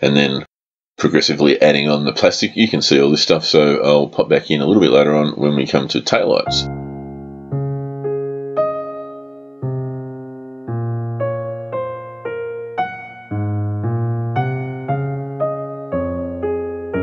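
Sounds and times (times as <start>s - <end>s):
electric piano chords: 6.4s - 17.0s.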